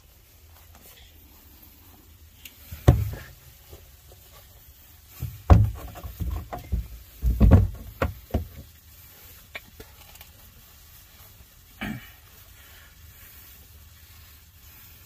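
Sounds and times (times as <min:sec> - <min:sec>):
knocks and thumps: 0:02.7 - 0:03.4, 0:05.1 - 0:08.7.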